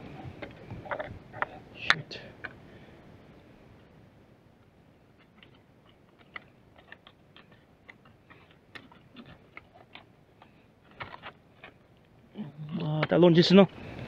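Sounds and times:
low background hiss: 0:00.0 - 0:14.0.

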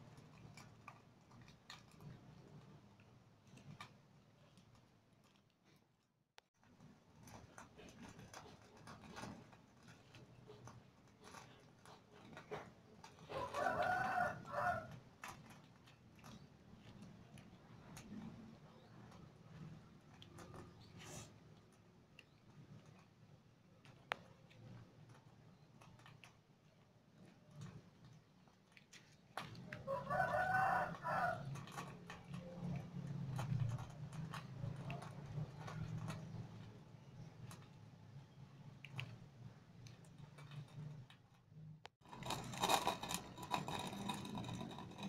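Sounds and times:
rooster crowing: 0:13.3 - 0:14.9, 0:29.8 - 0:31.5.

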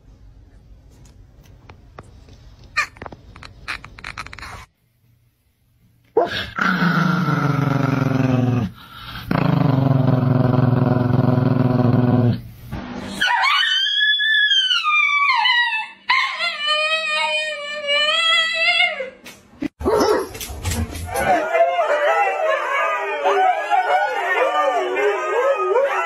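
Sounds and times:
dog howling: 0:21.1 - 0:26.0
man howling like a dog: 0:21.2 - 0:26.0.

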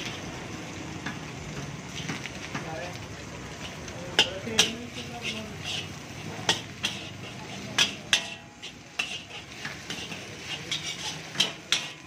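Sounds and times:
frying hiss: 0:00.0 - 0:12.0
steel spatula clanking on wok: 0:03.5 - 0:12.0.

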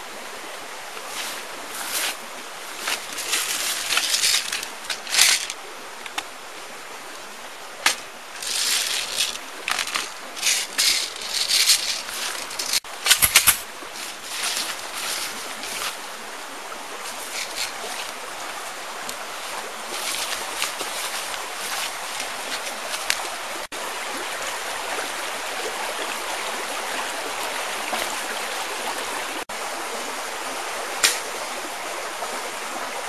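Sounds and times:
leaves and branches rustling: 0:00.0 - 0:24.2
outdoor hiss: 0:00.0 - 0:24.5.

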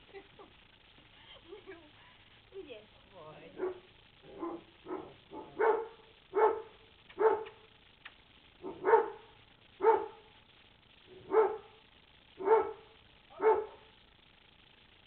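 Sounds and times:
dog barking: 0:03.6 - 0:07.6, 0:08.6 - 0:10.3, 0:11.1 - 0:11.8, 0:12.4 - 0:14.0.

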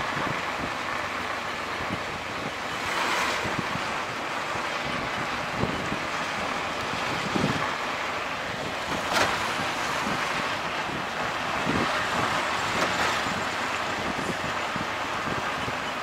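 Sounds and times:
auto-rickshaw engine running: 0:00.0 - 0:16.0
wind buffeting microphone: 0:00.0 - 0:16.0.

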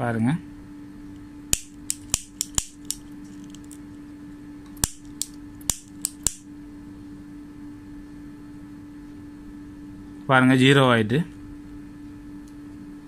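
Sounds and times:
lighter clicking: 0:01.5 - 0:03.8, 0:04.8 - 0:06.4.

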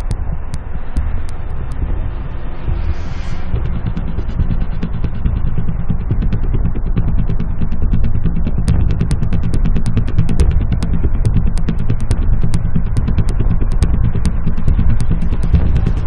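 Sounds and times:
rapid irregular clatter: 0:00.0 - 0:16.0.

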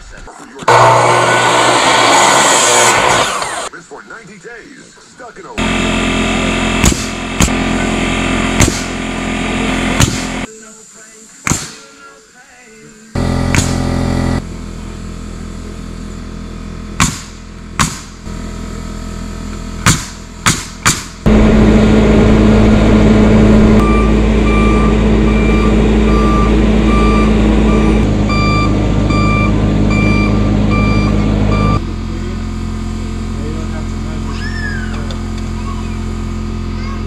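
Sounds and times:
diesel engine running: 0:00.6 - 0:03.8, 0:05.4 - 0:10.5, 0:13.2 - 0:37.0
sharp knocks: 0:06.8 - 0:07.6, 0:08.6 - 0:08.9, 0:10.0 - 0:10.4, 0:13.5 - 0:13.8, 0:17.0 - 0:18.2, 0:19.8 - 0:21.3
backup alarm beeping: 0:23.4 - 0:31.8.

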